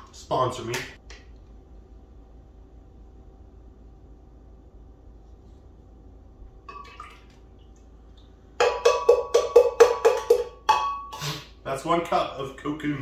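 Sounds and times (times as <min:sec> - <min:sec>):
faint hum: 0:00.0 - 0:13.0
liquid pouring and glugging: 0:06.7 - 0:08.2.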